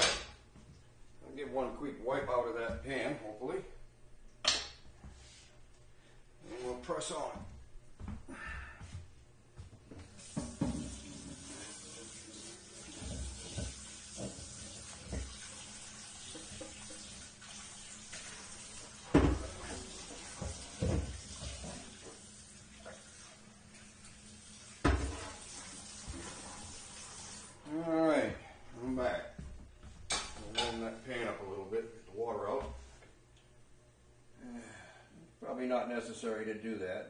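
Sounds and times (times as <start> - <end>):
tap running into sink: 10.0 - 18.3, 19.0 - 22.3, 24.8 - 26.4.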